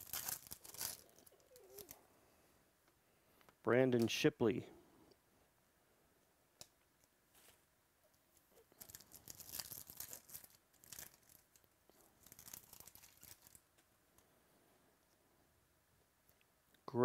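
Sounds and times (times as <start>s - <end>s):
foil wrapper tearing and crinkling: 0.0s - 2.0s, 8.7s - 13.6s.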